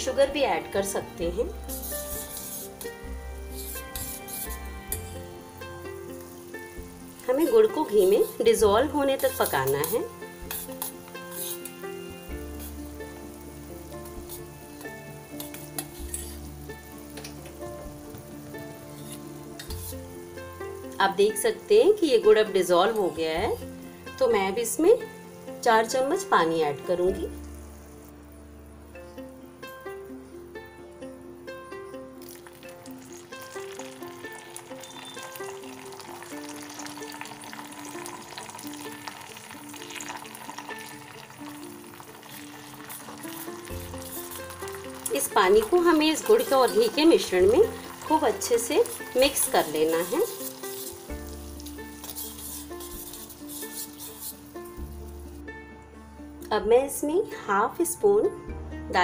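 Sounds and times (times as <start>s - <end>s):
sugar bubbling and sizzling in pan: 0.0s - 56.4s
soft background music: 0.0s - 59.0s
steel spoon stirring: 1.4s - 13.0s, 13.8s - 17.4s, 18.8s - 20.7s, 32.2s - 55.4s
water pouring: 32.2s - 55.3s
metal spoon clinking against pan: 46.2s - 54.5s.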